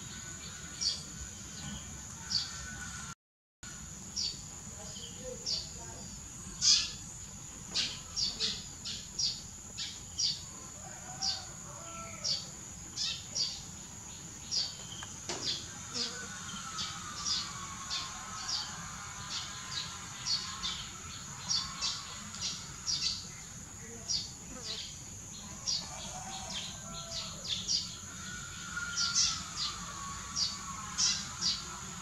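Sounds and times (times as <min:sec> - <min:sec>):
high-pitched insect drone: 0:11.1 - 0:32.0.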